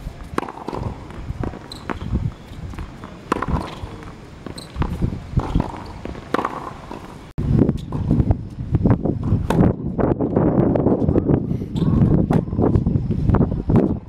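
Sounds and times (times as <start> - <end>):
ball bouncing on hard court: 0.2 - 7.2
tennis ball hitting rackets: 0.2 - 8.1.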